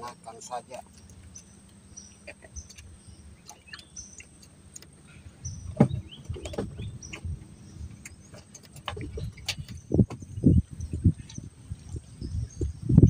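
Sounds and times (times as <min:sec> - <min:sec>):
small bird chirping: 0:00.3 - 0:13.0
microphone handling rumble: 0:05.4 - 0:13.0.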